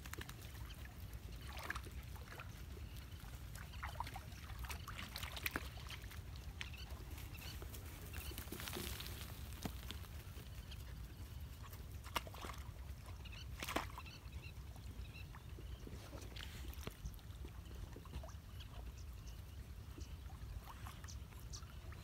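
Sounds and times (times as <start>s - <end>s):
short water splashes: 0.0s - 10.1s, 12.0s - 14.2s
dogs wading in muddy water: 0.0s - 22.0s.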